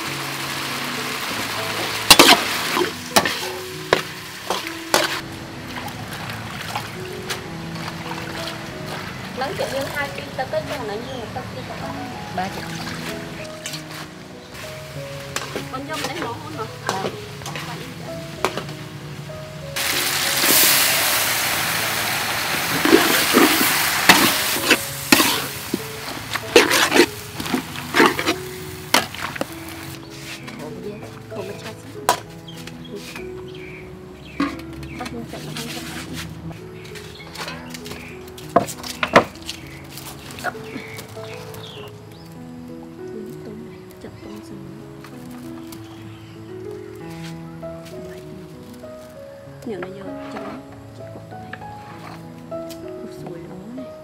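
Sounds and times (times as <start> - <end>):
food sizzling in a pan: 0.0 - 5.2, 19.8 - 30.5
background music: 0.0 - 54.0.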